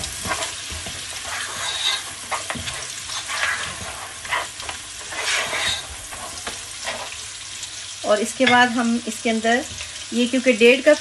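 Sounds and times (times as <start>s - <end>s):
spatula swishing in pot: 0.0s - 7.4s
meat sizzling in hot oil: 0.0s - 11.0s.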